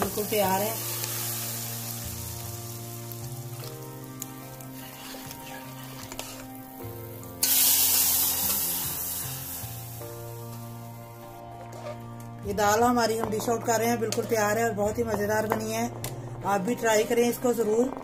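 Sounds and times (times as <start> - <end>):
hot oil sizzling: 0.0 - 11.4.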